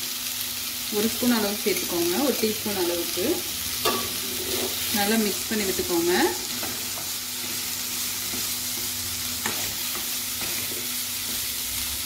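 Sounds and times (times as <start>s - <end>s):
vegetables sizzling in oil: 0.0s - 12.0s
wooden spatula scraping: 4.1s - 5.2s.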